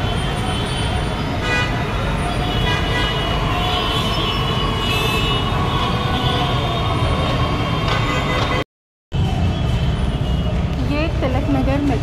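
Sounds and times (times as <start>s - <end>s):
vehicle horns: 0.0s - 8.6s
traffic engines din: 0.0s - 12.0s.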